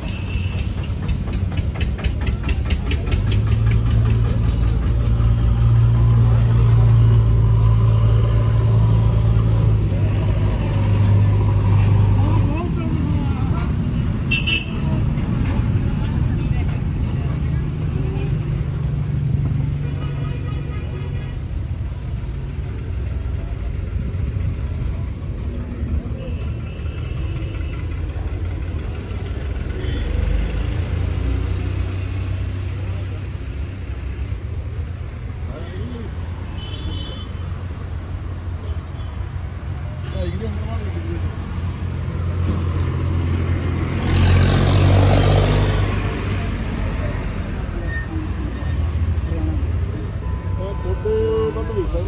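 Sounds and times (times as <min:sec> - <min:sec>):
tractor engine idling: 0:00.0 - 0:06.6.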